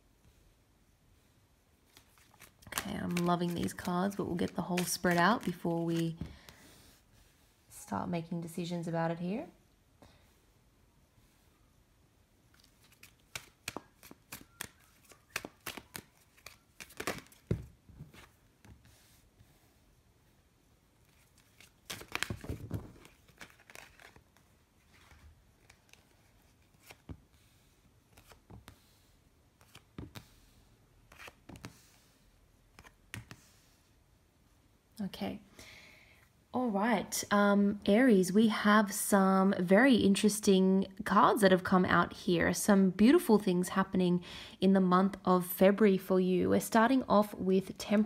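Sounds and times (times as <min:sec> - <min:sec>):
cards snapping and sliding: 0:12.5 - 0:17.6, 0:21.4 - 0:24.2, 0:28.1 - 0:28.8, 0:31.1 - 0:31.9, 0:32.7 - 0:33.4.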